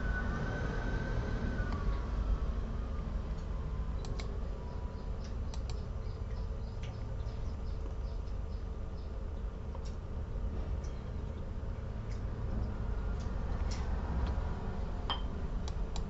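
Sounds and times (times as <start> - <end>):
low background rumble: 0.0 - 16.0
computer mouse clicks: 4.0 - 4.3, 5.5 - 5.8.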